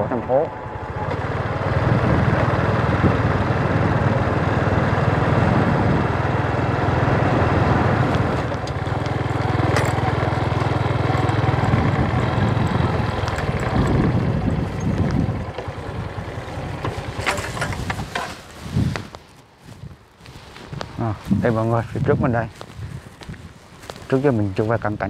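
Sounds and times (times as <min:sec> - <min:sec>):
vehicle engine running: 0:00.0 - 0:18.7
wind rush: 0:01.5 - 0:08.6, 0:11.5 - 0:24.0.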